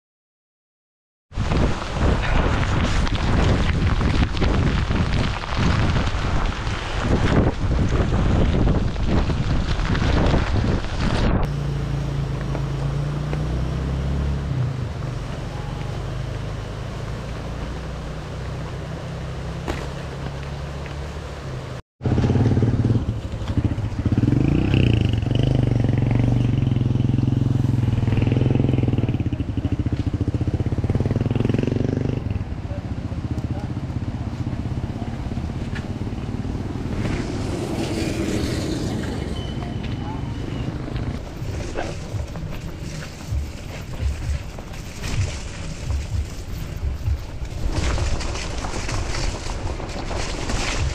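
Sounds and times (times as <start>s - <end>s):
bicycle tyres rolling on gravel: 1.3s - 11.5s, 14.9s - 21.8s, 22.9s - 25.6s, 33.2s - 50.9s
wind buffeting microphone: 1.3s - 11.5s, 40.5s - 50.9s.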